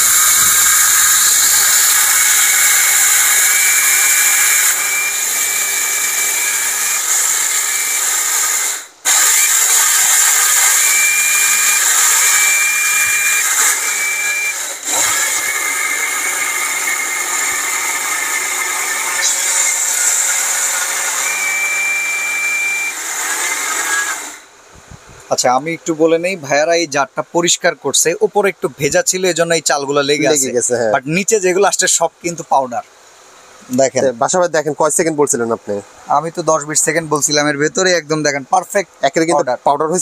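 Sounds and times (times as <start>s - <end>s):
mixer grinder grinding rice: 0.0s - 24.4s.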